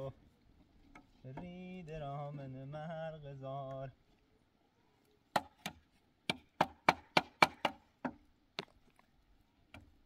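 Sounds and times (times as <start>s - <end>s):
hammer striking wood: 5.3s - 8.2s.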